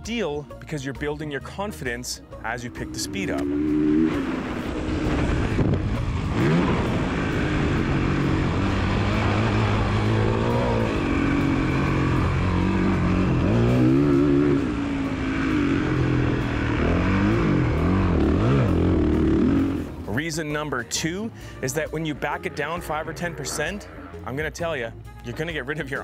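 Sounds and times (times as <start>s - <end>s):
dirt bike engine revving: 2.4s - 20.2s.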